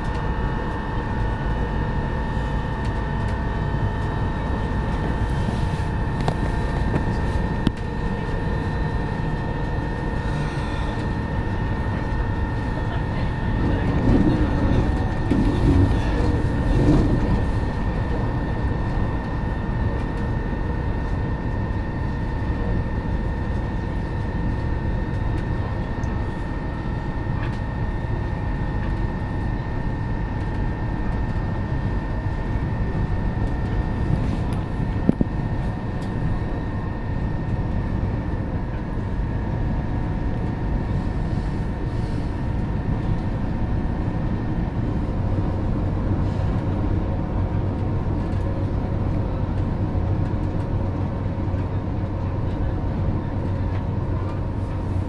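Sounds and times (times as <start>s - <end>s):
train motor whine: 0.0s - 30.6s
wheels rumbling on rail: 0.0s - 55.0s.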